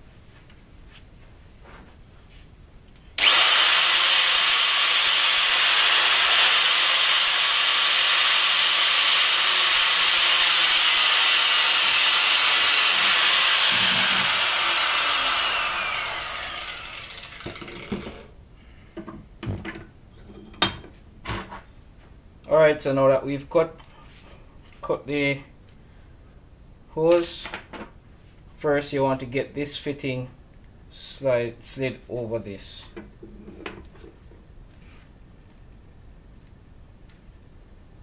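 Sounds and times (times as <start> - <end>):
angle grinder cutting hose: 3.2 - 18.3.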